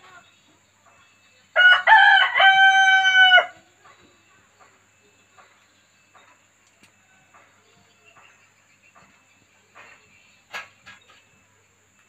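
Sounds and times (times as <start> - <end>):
rooster crowing: 1.6 - 3.6.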